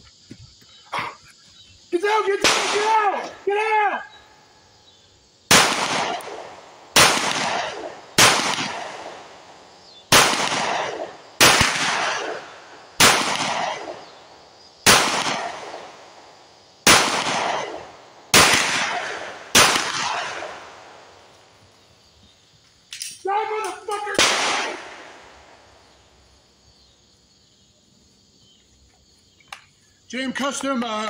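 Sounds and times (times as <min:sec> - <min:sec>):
pistol shots with echo: 0:02.4 - 0:03.4, 0:05.5 - 0:14.2, 0:14.8 - 0:21.1, 0:23.5 - 0:25.6.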